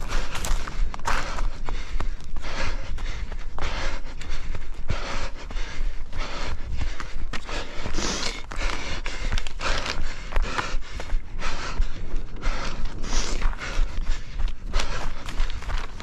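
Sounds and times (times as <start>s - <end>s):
runner panting: 0.0s - 16.0s.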